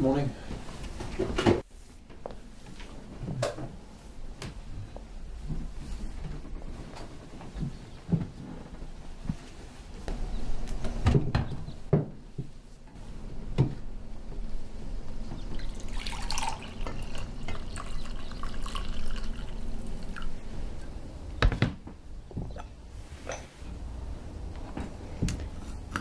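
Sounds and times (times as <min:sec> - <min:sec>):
liquid being poured: 0:15.5 - 0:20.4.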